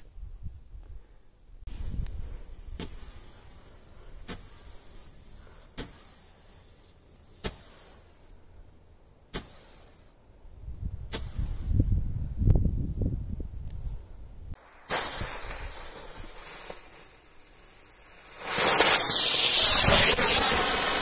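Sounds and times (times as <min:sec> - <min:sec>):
burning firework hiss: 0:01.7 - 0:08.4, 0:09.3 - 0:10.2, 0:11.0 - 0:12.1, 0:14.5 - 0:21.0.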